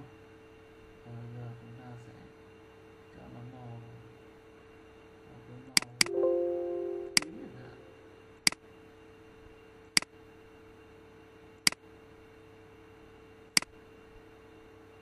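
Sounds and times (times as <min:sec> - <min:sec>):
faint steady hum: 0:01.1 - 0:08.5.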